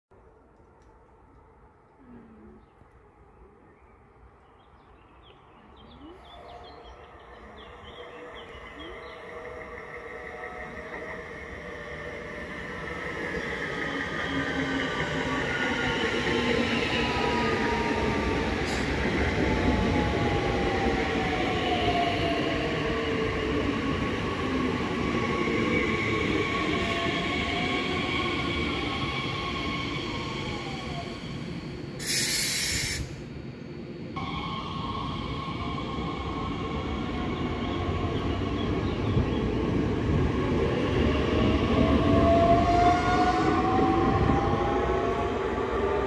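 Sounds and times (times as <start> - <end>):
train rail rumble: 5.9 - 46.0
short sharp hiss: 32.0 - 33.2.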